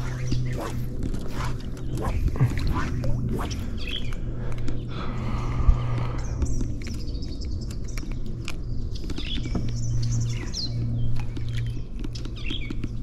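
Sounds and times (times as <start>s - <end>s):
birds chirping: 0.0s - 13.0s
low hum: 0.0s - 13.0s.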